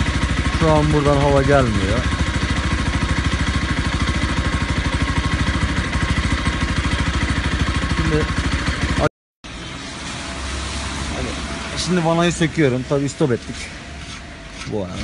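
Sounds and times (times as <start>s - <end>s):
motorcycle engine idling: 0.0s - 10.3s.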